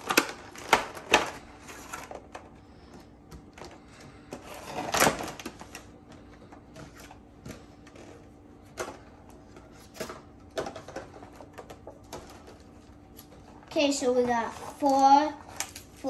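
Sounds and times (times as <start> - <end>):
plastic packaging crinkling: 0.0 - 2.4.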